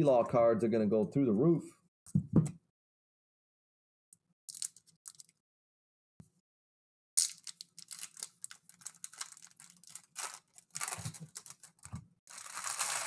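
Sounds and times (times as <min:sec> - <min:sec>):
foil wrappers crinkling: 0:07.2 - 0:13.0.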